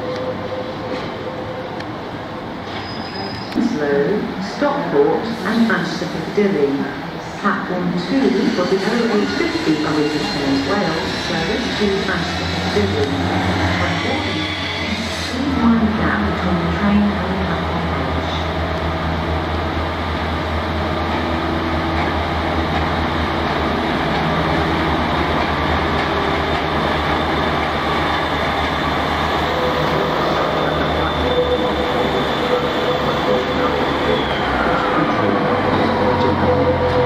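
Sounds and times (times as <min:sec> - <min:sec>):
diesel train engine drone: 0:00.0 - 0:37.0
train wheels on rails: 0:08.1 - 0:37.0.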